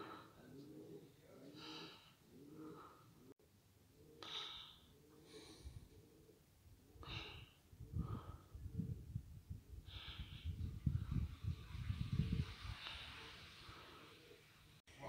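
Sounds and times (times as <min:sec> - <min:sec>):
person breathing: 0:00.0 - 0:00.8, 0:01.4 - 0:03.4, 0:04.1 - 0:06.2, 0:06.9 - 0:09.0, 0:09.7 - 0:11.1
wind on microphone: 0:07.1 - 0:13.9.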